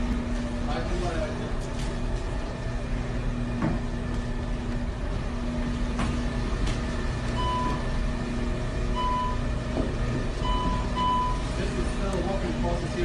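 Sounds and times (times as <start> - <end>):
conveyor belt hum: 0.0 - 13.0
short electronic beeps: 10.4 - 11.4.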